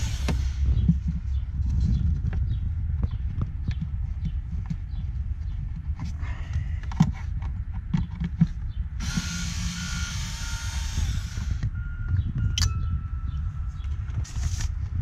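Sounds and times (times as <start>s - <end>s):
cordless driver whining: 0.0s - 0.9s, 9.0s - 12.8s
clicks and knocks on plastic: 6.8s - 8.7s.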